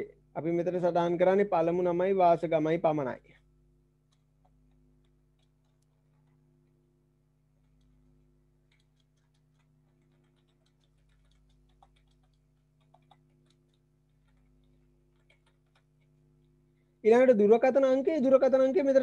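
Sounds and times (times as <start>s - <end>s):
low electrical hum: 0.0s - 19.0s
computer keyboard typing: 4.1s - 6.4s, 7.6s - 8.0s, 8.6s - 16.2s.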